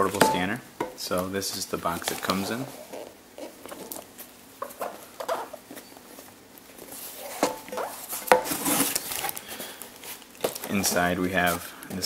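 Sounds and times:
cardboard squeaks: 0:02.0 - 0:04.0, 0:06.8 - 0:09.4.

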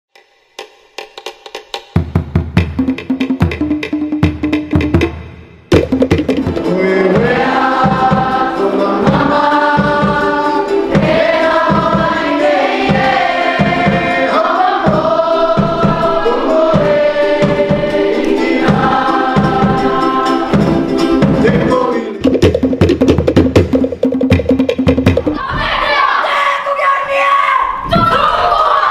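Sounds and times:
steady drum beat: 0:01.2 - 0:25.8
group singing: 0:06.4 - 0:22.3.

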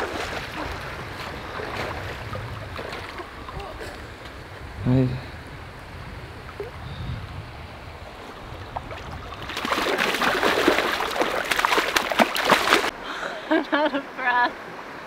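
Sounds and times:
stream water running: 0:00.0 - 0:15.0
fish thrashing and splashing: 0:08.7 - 0:12.9.

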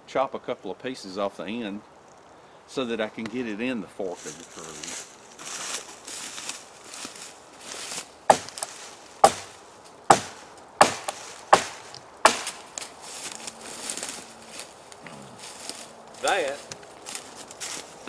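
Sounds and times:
soft rustling: 0:03.2 - 0:18.0
blade chopping into log: 0:08.3 - 0:09.5, 0:10.1 - 0:12.6.

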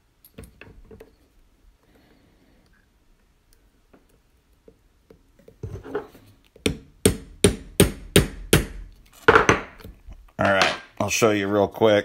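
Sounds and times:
hammer tapping a punch: 0:06.6 - 0:08.8.

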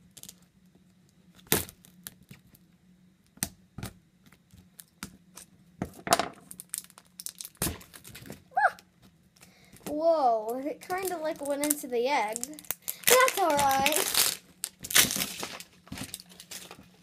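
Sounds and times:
plastic wrap tearing and crackling: 0:06.4 - 0:08.5, 0:10.4 - 0:17.0.

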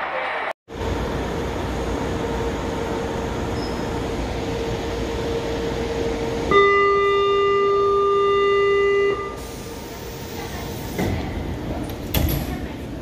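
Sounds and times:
train car low rumble: 0:00.7 - 0:13.0
electronic warning tone: 0:06.5 - 0:09.5.

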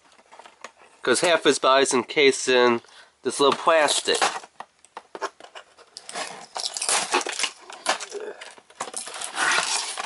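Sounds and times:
cardboard scraping and rustling: 0:03.4 - 0:08.1, 0:08.7 - 0:10.0
knife slitting packing tape: 0:09.0 - 0:10.0.

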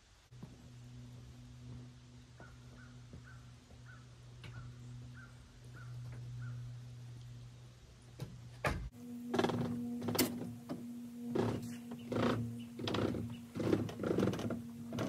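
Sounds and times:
steady low hum: 0:00.0 - 0:15.0
crow cawing: 0:02.4 - 0:06.6.

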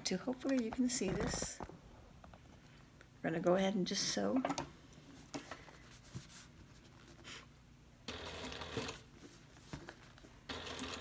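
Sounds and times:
sewing machine stitching: 0:10.5 - 0:11.0.

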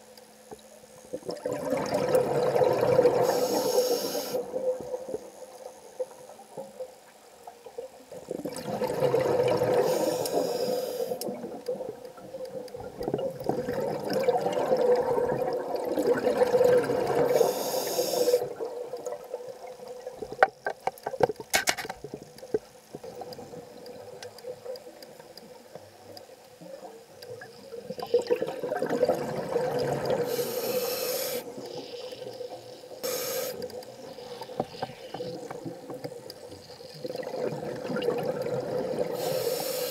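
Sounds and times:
diver exhaling bubbles: 0:01.2 - 0:04.8, 0:08.4 - 0:10.5, 0:37.0 - 0:39.6
regulator hiss: 0:03.1 - 0:06.8, 0:09.7 - 0:11.4, 0:17.2 - 0:18.6, 0:30.2 - 0:35.7, 0:39.0 - 0:39.9.

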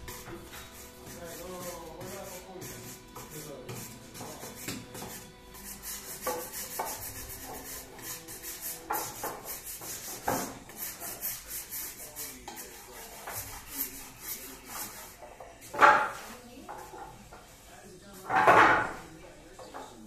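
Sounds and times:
hand tool rubbing on wood: 0:00.0 - 0:15.3.

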